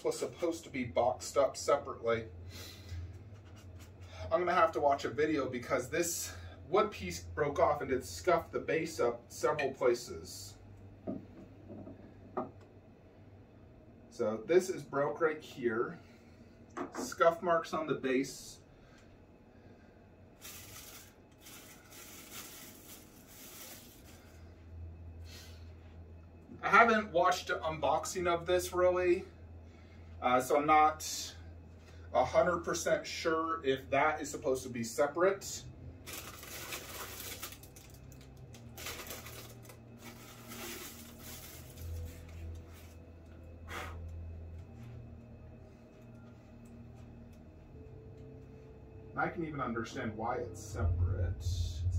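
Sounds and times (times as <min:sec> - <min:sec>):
low steady hum: 0:00.0 - 0:51.9
packaging rustling: 0:20.4 - 0:24.4, 0:36.0 - 0:43.0.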